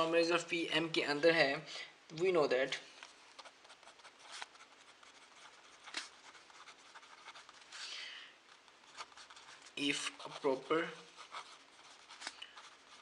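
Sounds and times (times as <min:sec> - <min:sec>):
pen scratching on paper: 0:03.4 - 0:07.8, 0:08.8 - 0:13.0.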